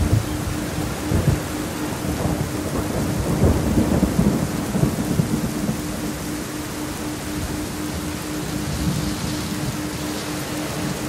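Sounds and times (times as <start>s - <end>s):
low thunder rumbling: 0.0s - 11.0s
steady rain: 0.0s - 11.0s
thin pulsing tone: 5.9s - 11.0s.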